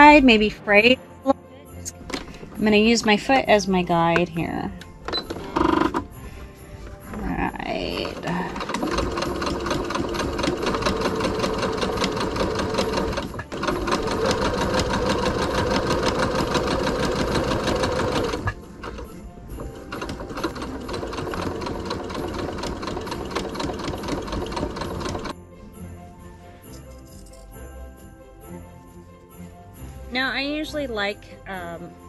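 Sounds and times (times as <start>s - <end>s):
sewing machine stitching: 5.1s - 6.1s, 7.8s - 25.3s.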